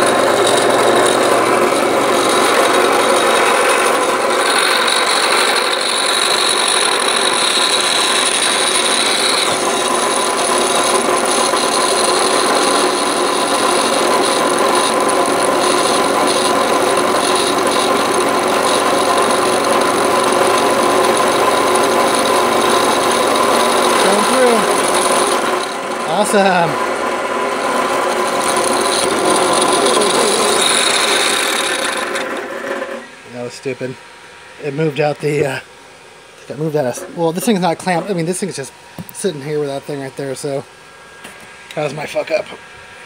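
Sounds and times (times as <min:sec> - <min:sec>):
drill press milling metal: 0:00.0 - 0:33.2.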